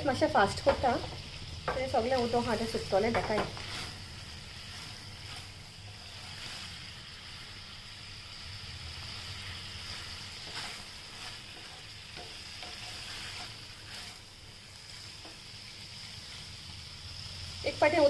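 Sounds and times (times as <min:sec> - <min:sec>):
squid sizzling in a pan: 0:00.0 - 0:18.0
wooden spatula scraping a pan: 0:01.7 - 0:06.8, 0:09.7 - 0:15.5.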